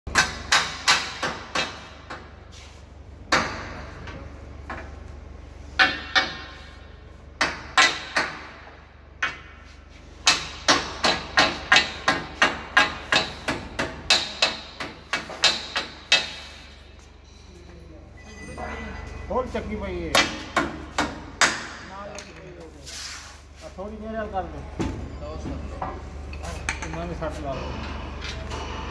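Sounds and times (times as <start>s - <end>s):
hammer striking steel frame: 0.1s - 2.3s, 3.3s - 4.9s, 5.8s - 16.9s, 20.0s - 22.1s
steady low hum: 0.1s - 28.9s.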